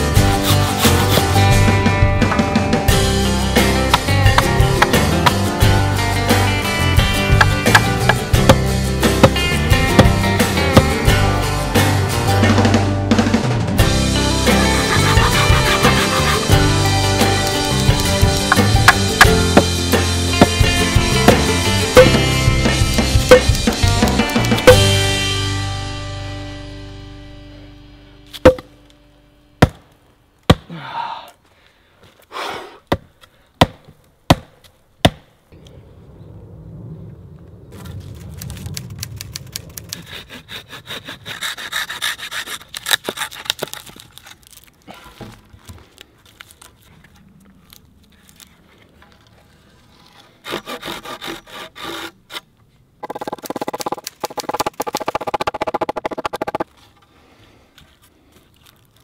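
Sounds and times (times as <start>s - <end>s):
fast strokes cutting a notch: 14.2s - 19.1s
saw cutting wood: 14.4s - 19.7s, 40.1s - 43.6s, 50.4s - 52.4s.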